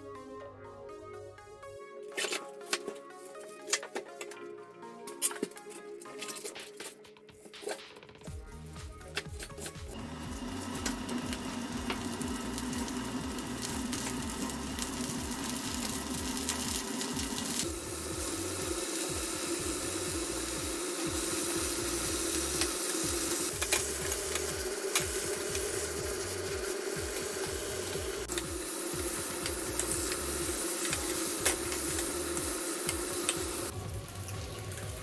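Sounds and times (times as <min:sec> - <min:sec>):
cabbage sizzling in hot oil: 0:10.0 - 0:35.0.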